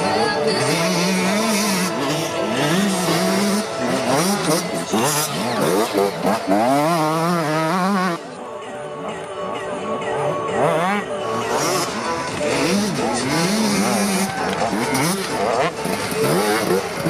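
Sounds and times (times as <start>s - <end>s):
motorcycle engine revving: 0.0s - 8.4s, 10.2s - 17.0s.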